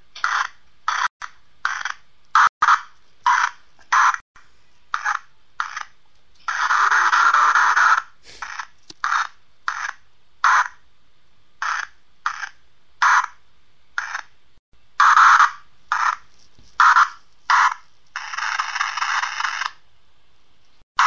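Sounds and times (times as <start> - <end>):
radio static bursts: 6.5 - 9.8, 15.0 - 19.7.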